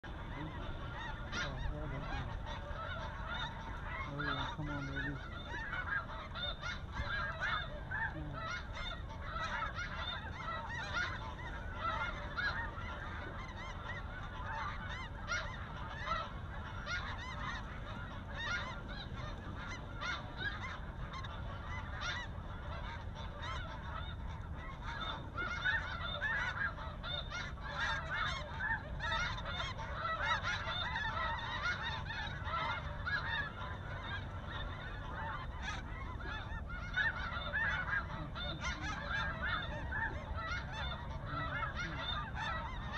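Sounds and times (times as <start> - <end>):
geese yelping and honking: 0.0 - 42.9.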